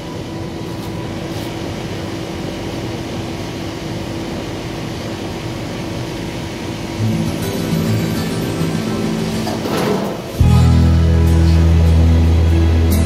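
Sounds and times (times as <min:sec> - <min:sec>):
air conditioner fan whirring: 0:00.0 - 0:13.0
music: 0:07.0 - 0:13.0.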